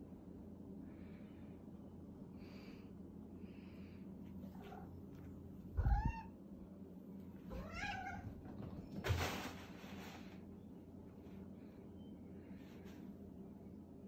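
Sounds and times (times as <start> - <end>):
cat meowing: 5.8 - 6.4, 7.5 - 8.3.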